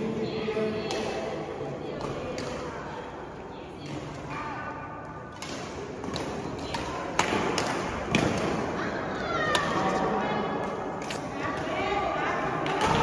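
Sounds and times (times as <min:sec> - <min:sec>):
echoing sports hall din: 0:00.0 - 0:13.0
racket hitting shuttlecock: 0:05.3 - 0:08.8.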